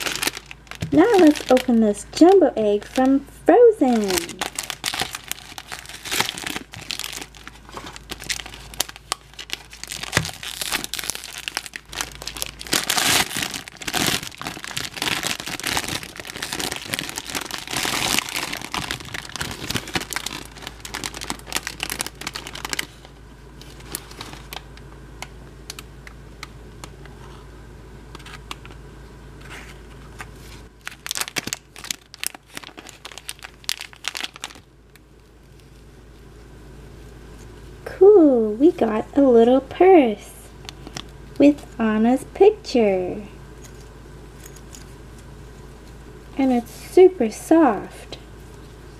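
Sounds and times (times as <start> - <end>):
foil wrapper crinkling and tearing: 0.0 - 3.2, 3.9 - 24.8, 30.2 - 35.9.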